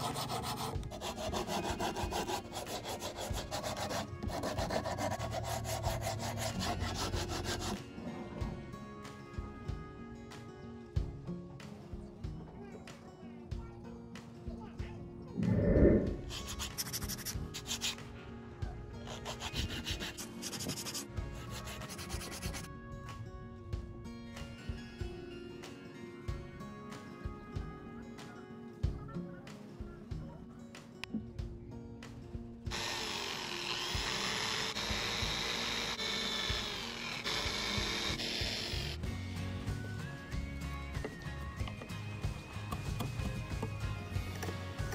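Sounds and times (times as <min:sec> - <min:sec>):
sanding block rasping on wood: 0:00.0 - 0:07.8, 0:16.3 - 0:18.0, 0:19.0 - 0:22.7
electric drill boring into wood: 0:32.7 - 0:39.0.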